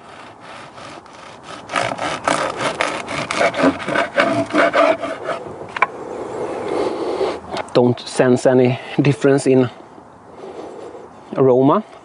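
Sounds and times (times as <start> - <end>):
bread knife sawing through loaf: 0.0 - 5.4.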